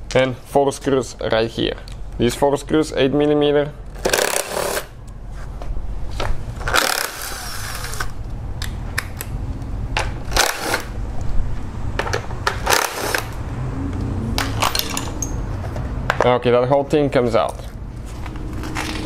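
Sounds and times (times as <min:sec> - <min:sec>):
cordless electric screwdriver running: 0:06.7 - 0:08.1, 0:10.4 - 0:10.9.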